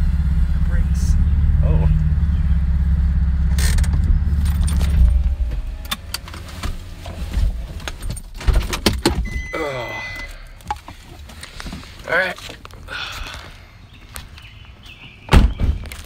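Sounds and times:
car engine idling: 0.0s - 8.4s
short steady beep: 9.2s - 10.5s.

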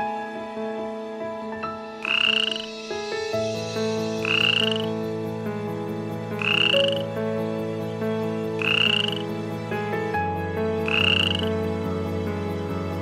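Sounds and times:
soft background music chords: 0.0s - 13.0s
croaking call: 2.0s - 2.7s, 4.2s - 4.9s, 6.4s - 7.1s, 8.6s - 9.3s, 10.8s - 11.5s.

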